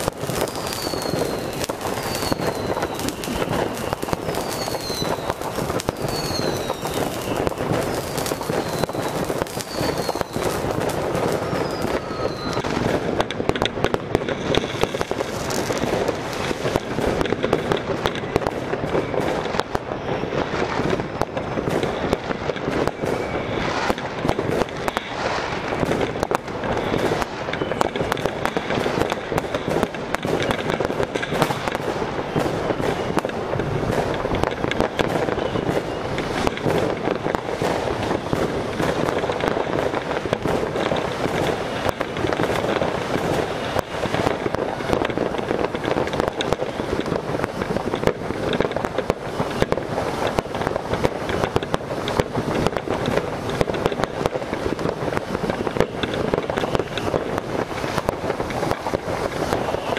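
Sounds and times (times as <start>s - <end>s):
firework fountain hissing and crackling: 0.0s - 59.9s
short falling whistles: 0.5s - 5.4s, 6.0s - 7.5s, 11.4s - 12.7s.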